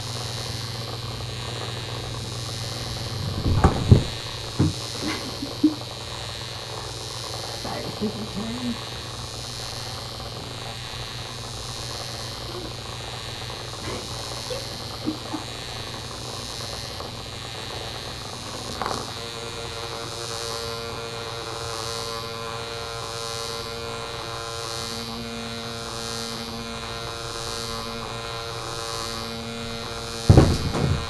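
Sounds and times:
robotic bug toy buzzing: 0:00.0 - 0:31.0
brief knock: 0:30.3 - 0:31.0.

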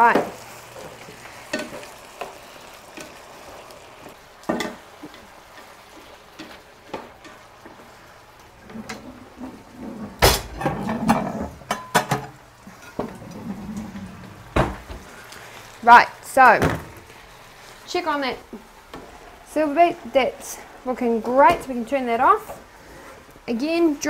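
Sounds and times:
cupboard and dishes clattering: 0:08.6 - 0:15.0.

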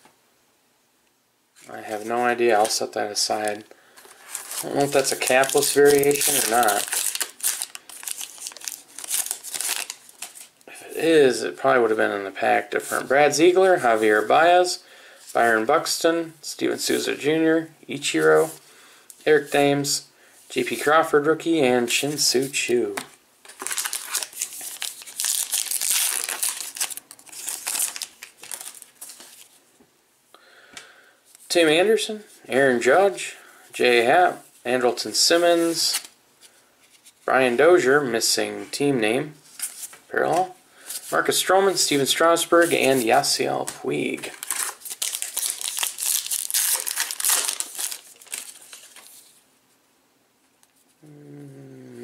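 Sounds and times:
wrapper being torn and crinkled: 0:04.1 - 0:10.5, 0:23.5 - 0:29.6, 0:44.3 - 0:49.3.

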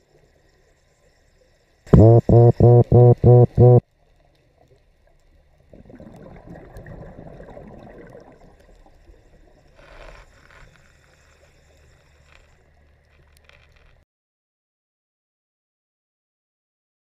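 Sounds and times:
steady low hum: 0:01.9 - 0:03.8
underwater bubbles gurgling: 0:02.7 - 0:09.8.

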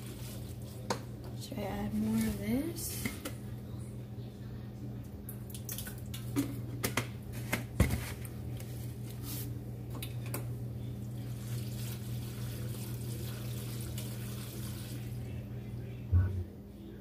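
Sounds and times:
wet stirring in a pot: 0:00.0 - 0:03.4, 0:11.2 - 0:15.2
steady low hum: 0:00.0 - 0:17.0.

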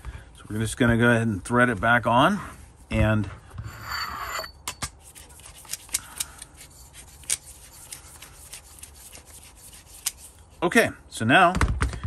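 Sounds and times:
hands rubbing metal: 0:03.6 - 0:10.6.

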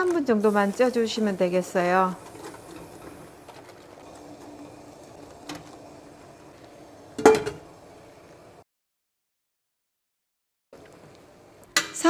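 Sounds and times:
metal lid clanking on pot: 0:07.2 - 0:07.6.

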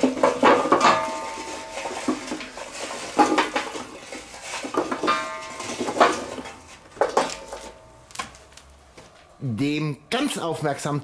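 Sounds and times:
charcoal clattering in metal: 0:00.0 - 0:09.2
metallic ring: 0:05.1 - 0:06.0.

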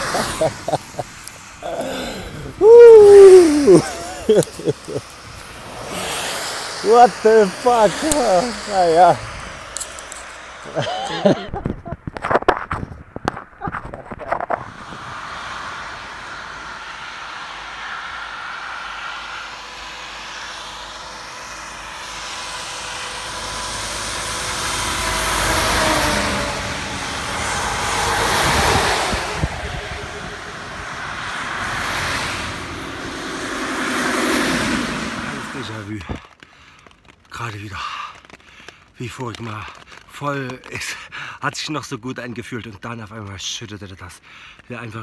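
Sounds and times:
vehicles passing on wet road: 0:00.0 - 0:12.6, 0:13.3 - 0:37.4, 0:38.2 - 0:41.3.

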